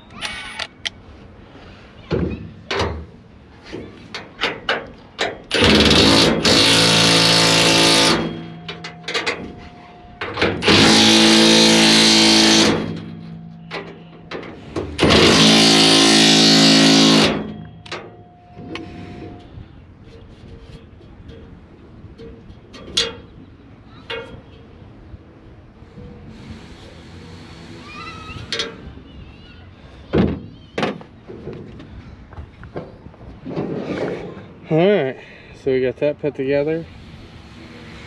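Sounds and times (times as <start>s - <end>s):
power tool running: 5.5s - 8.6s, 10.6s - 13.2s, 15.0s - 17.6s.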